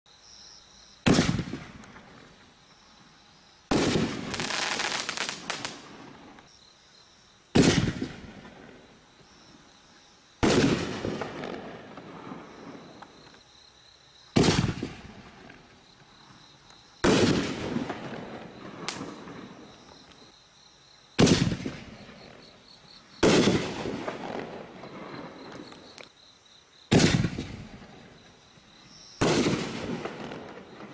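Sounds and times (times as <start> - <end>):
firework bangs: 1.0 - 2.3, 3.7 - 6.4, 7.5 - 8.8, 10.4 - 13.0, 14.3 - 15.6, 17.0 - 19.7, 21.2 - 22.4, 23.2 - 25.7, 26.9 - 28.2, 29.2 - 30.9
firework crackling: 1.0 - 2.4, 3.7 - 6.5, 7.6 - 8.9, 10.4 - 13.0, 14.3 - 15.8, 17.0 - 19.7, 21.2 - 22.2, 23.2 - 26.1, 26.9 - 28.2, 29.2 - 30.9.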